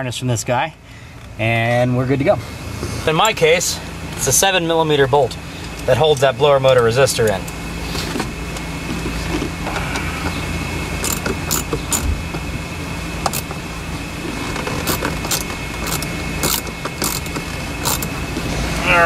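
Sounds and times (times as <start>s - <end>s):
steady background hum: 0.0s - 19.0s
socket wrench clicking: 11.0s - 12.1s, 14.8s - 18.1s
metal parts clinking: 14.7s - 18.1s.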